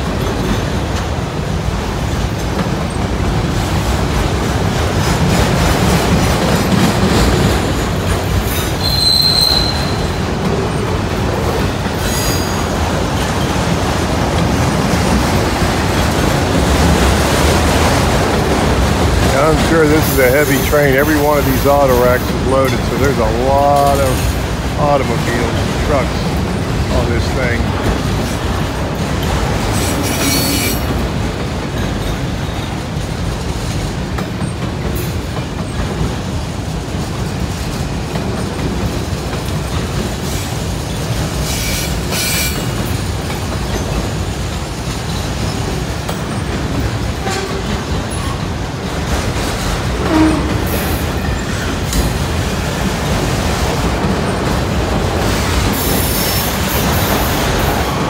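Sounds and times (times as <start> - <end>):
freight train rumbling on rails: 0.0 - 58.0
train wheels squealing: 8.4 - 10.2, 12.0 - 13.5, 29.8 - 30.9, 41.4 - 42.8.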